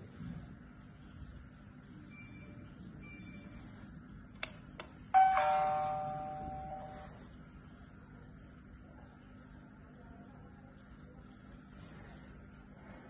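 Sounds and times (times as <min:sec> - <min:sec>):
doorbell chime ding: 0:05.2 - 0:07.2.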